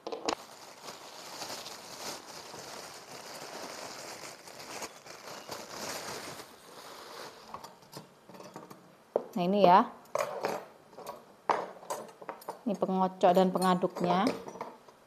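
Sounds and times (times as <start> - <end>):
plastic bag crinkling: 0.3 - 7.6.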